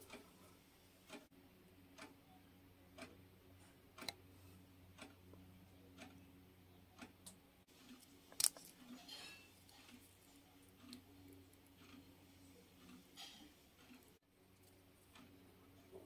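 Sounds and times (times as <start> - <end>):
faint regular ticking: 0.0 - 1.3, 1.9 - 3.2, 4.8 - 6.2, 9.7 - 15.9.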